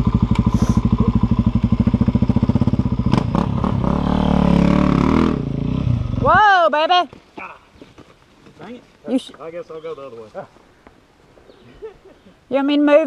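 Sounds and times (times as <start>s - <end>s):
dirt bike engine: 0.0s - 6.9s.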